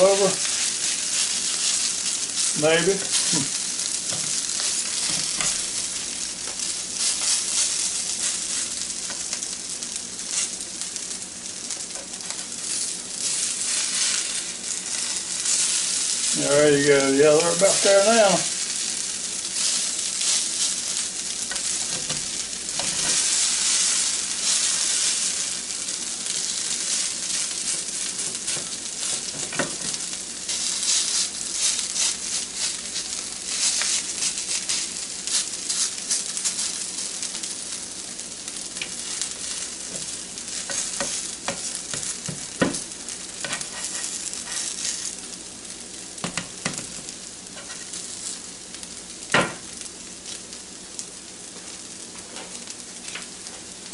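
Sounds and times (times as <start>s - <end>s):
potatoes sizzling in a pan: 0.0s - 53.9s
spatula scraping and knocking pan: 21.5s - 25.2s, 38.8s - 42.8s, 43.4s - 45.1s.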